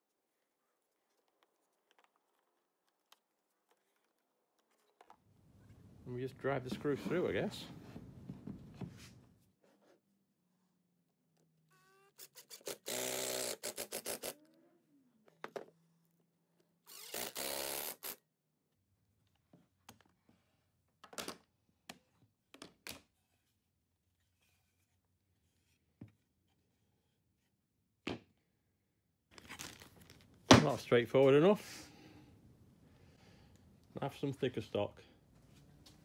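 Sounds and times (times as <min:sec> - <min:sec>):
cordless drill driving screws: 0:12.2 - 0:14.4, 0:16.9 - 0:18.2.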